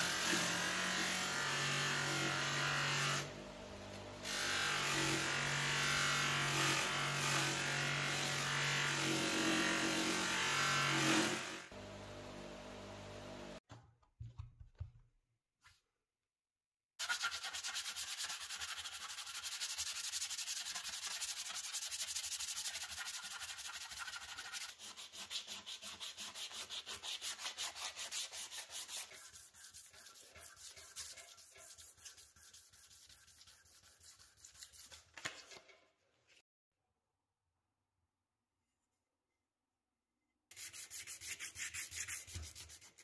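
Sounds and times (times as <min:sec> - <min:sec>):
sandpaper scratching on metal plate: 0:17.0 - 0:35.2, 0:40.5 - 0:43.0.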